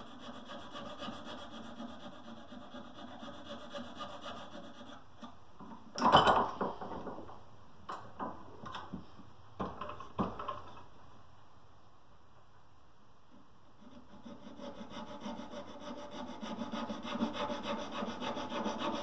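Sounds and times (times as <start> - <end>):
file rasping on wood: 0.0 - 5.0, 13.8 - 19.0.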